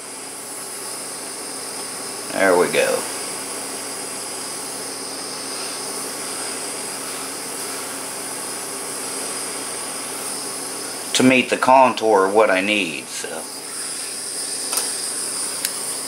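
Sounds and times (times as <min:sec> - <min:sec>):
butane torch hissing: 0:00.0 - 0:16.0.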